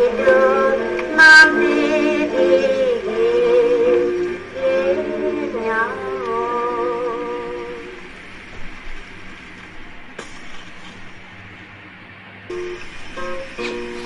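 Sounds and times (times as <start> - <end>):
person singing slow melody: 0.0 - 8.0.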